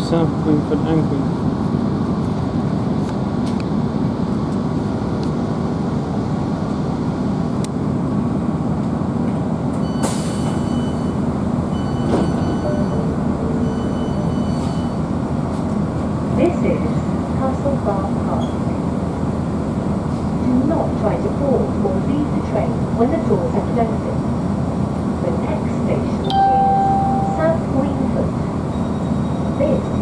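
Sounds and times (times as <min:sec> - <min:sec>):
train diesel engine running: 0:00.0 - 0:30.0
train wheels on rails: 0:13.7 - 0:17.1.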